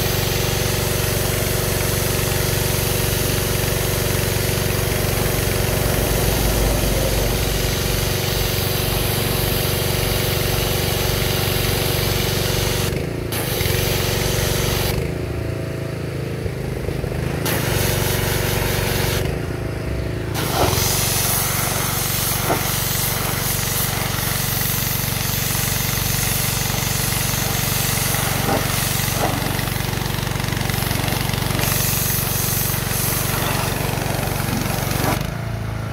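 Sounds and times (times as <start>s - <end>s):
pressure washer engine running: 0.0s - 35.9s
water jet hissing on metal: 20.4s - 35.3s.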